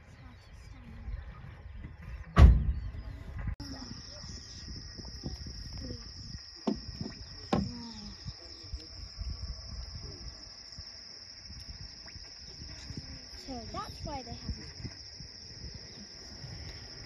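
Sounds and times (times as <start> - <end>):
insects chirring: 3.6 - 17.0
sharp knocks: 6.6 - 7.8.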